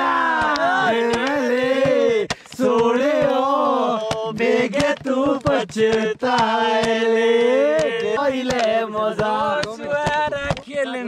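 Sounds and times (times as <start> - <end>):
man singing unaccompanied: 0.0 - 11.0
sharp clicks and pops: 0.0 - 11.0.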